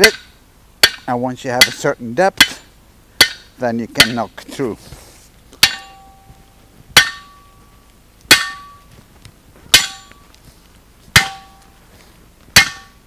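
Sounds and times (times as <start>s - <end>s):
sledgehammer striking wood: 0.0s - 1.8s, 2.4s - 4.3s, 5.6s - 6.3s, 7.0s - 7.4s, 8.3s - 8.8s, 9.7s - 10.1s, 11.1s - 11.6s, 12.5s - 13.0s
metallic ring: 5.6s - 7.7s, 8.3s - 8.8s, 9.7s - 10.2s, 11.2s - 11.7s.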